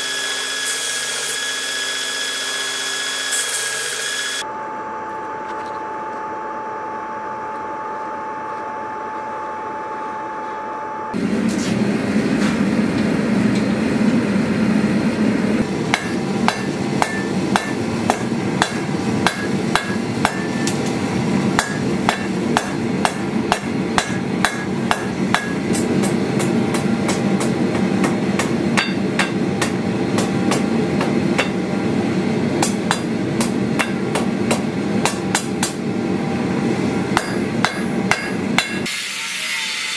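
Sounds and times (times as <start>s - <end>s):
single-tone hum: 1.6s - 38.8s
hammer striking metal on anvil: 15.6s - 21.0s, 21.6s - 31.6s, 32.6s - 35.8s, 37.1s - 39.1s.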